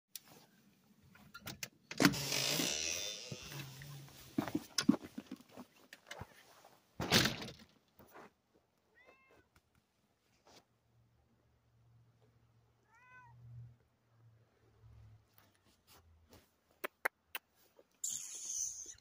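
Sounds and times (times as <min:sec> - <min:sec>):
crunching footsteps: 0:02.2 - 0:07.1
cat meowing: 0:08.9 - 0:09.5, 0:12.8 - 0:13.5.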